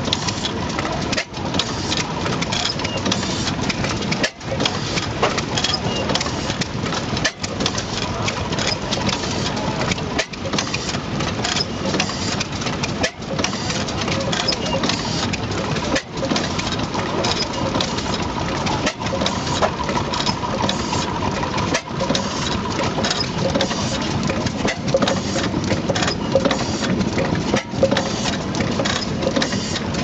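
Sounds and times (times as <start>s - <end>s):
stationary engine clattering: 0.0s - 30.0s.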